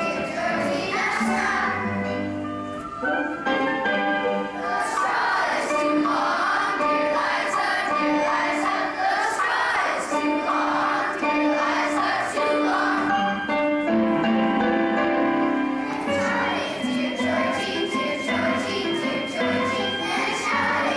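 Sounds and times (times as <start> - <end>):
children's choir singing: 0.0 - 20.9
instrumental accompaniment: 0.0 - 20.9.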